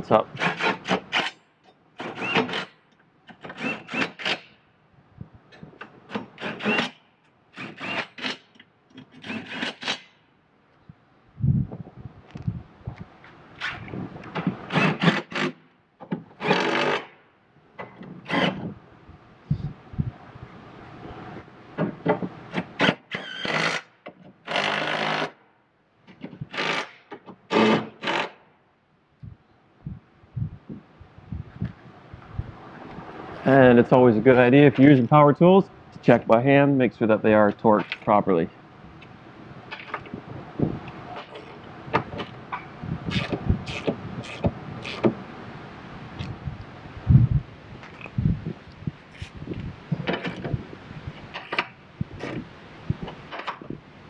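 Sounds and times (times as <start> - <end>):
cordless power tool driving bolts: 2.0 - 4.6, 5.8 - 10.1, 13.6 - 17.2, 17.8 - 18.7, 21.8 - 25.4, 26.2 - 28.4.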